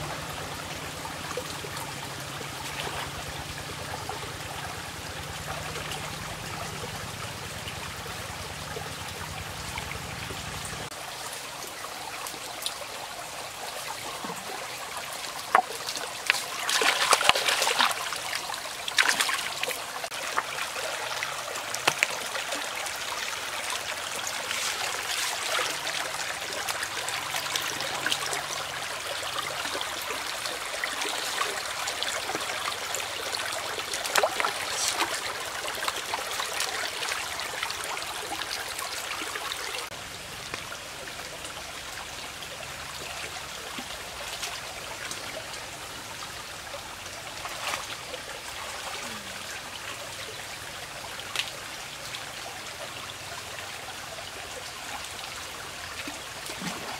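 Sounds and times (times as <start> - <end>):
stream trickling over stones: 0.0 - 56.9
splashes and knocks: 15.4 - 18.2, 18.9 - 19.8, 21.8 - 22.2.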